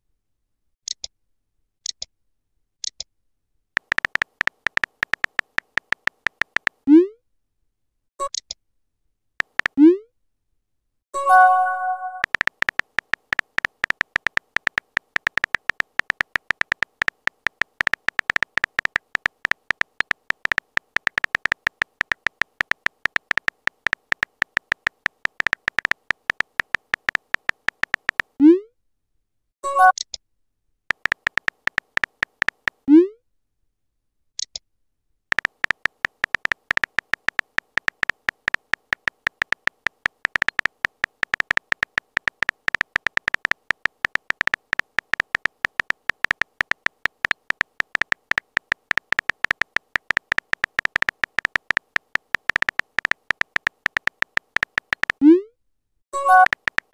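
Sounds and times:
keyboard typing clicks: 0:03.8 - 0:06.9, 0:09.4 - 0:09.9, 0:11.2 - 0:28.4, 0:30.9 - 0:32.9, 0:35.3 - 0:55.4, 0:56.2 - 0:56.9
message alert pop: 0:11.2 - 0:12.4.

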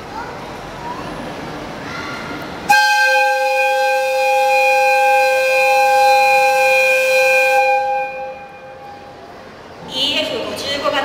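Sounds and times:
locomotive two-tone whistle: 0:02.7 - 0:09.1.

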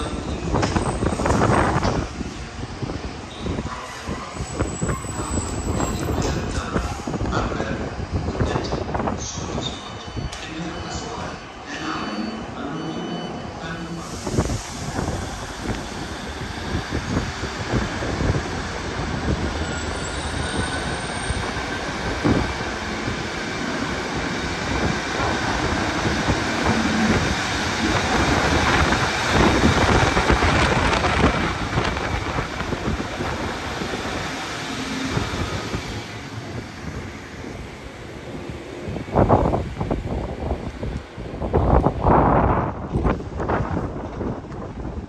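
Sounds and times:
train wheels on rails: 0:00.0 - 0:11.4, 0:14.0 - 0:45.0
diesel train engine: 0:11.4 - 0:45.0.

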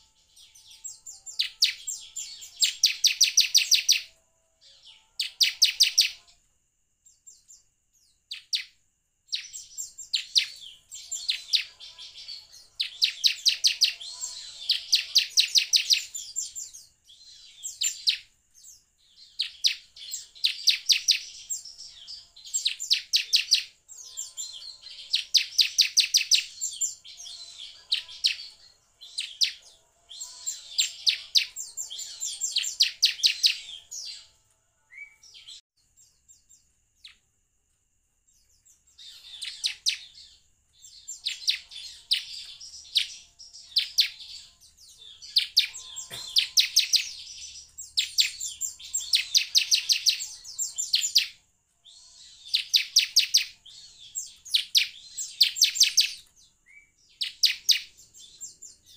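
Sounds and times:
bird singing high notes: 0:41.2 - 0:56.2.

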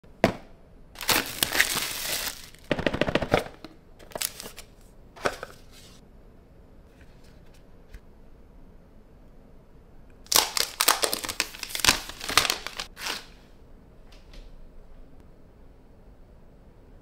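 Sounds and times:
plastic wrap crinkling and tearing: 0:01.0 - 0:03.0, 0:04.0 - 0:04.8, 0:10.3 - 0:13.4
packaging rustling: 0:01.0 - 0:05.7, 0:10.3 - 0:13.3.

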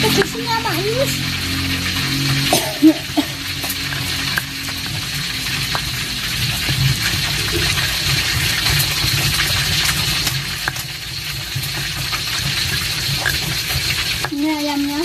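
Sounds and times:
stone pestle grinding in mortar: 0:03.6 - 0:14.4.

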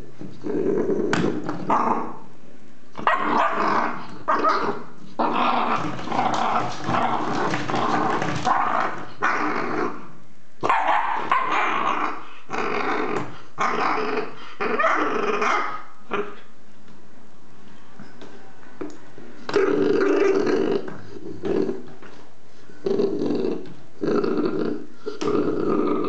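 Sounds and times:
puppy growling and barking: 0:00.5 - 0:02.3, 0:03.0 - 0:16.5, 0:23.0 - 0:26.0.

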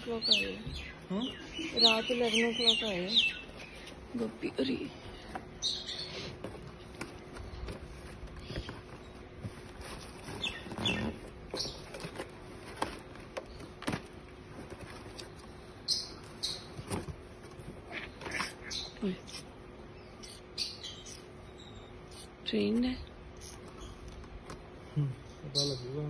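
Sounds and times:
birds chirping: 0:00.0 - 0:09.4, 0:10.1 - 0:12.2, 0:15.0 - 0:26.0
cardboard flaps rustling and scraping: 0:06.4 - 0:15.5, 0:16.6 - 0:18.4.

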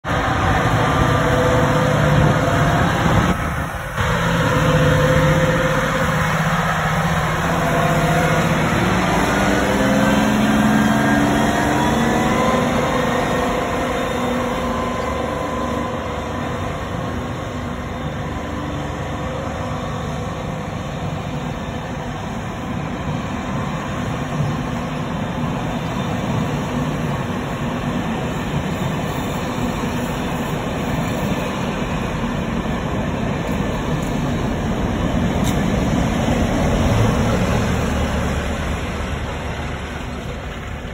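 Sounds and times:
locomotive engines: 0:00.0 - 0:40.9
train wheels rumbling on rail: 0:00.0 - 0:40.9.

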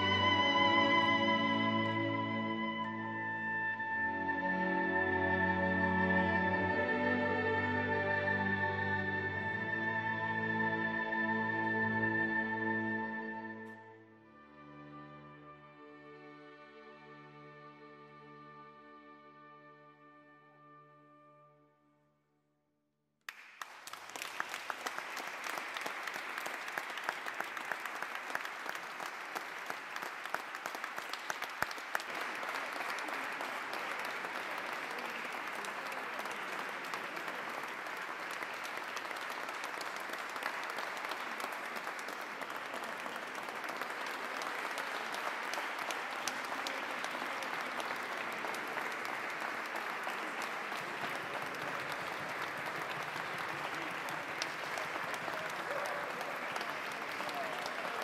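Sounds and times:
audience applauding: 0:00.0 - 0:03.0, 0:23.3 - 0:58.0.

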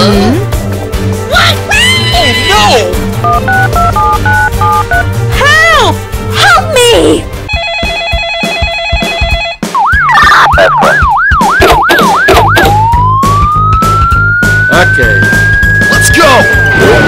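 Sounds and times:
background music with steady beat: 0:00.0 - 0:16.6
telephone ringing: 0:03.2 - 0:05.0, 0:07.5 - 0:10.4
police siren: 0:09.7 - 0:16.6.

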